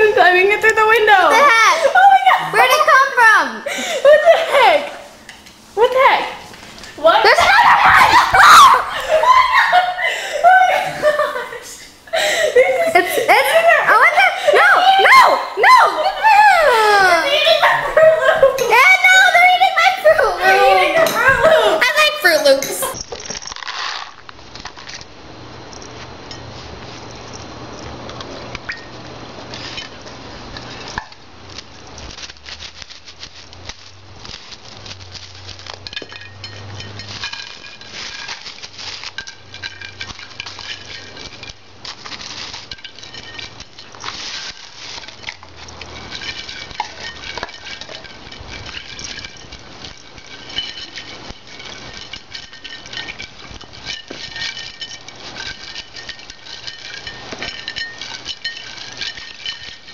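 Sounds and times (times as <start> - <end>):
ice cubes clinking: 29.6 - 59.9.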